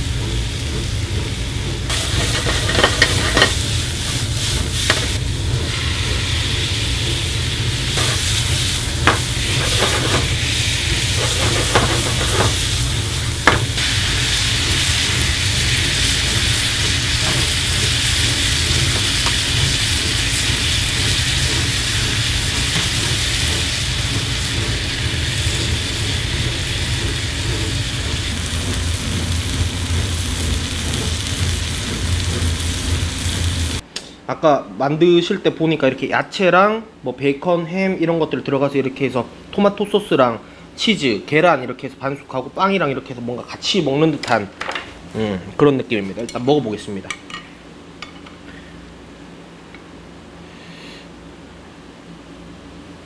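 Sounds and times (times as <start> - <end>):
utensil clanking against pan: 1.9 - 3.7, 11.1 - 12.6
food sizzling in a skillet: 1.9 - 33.8.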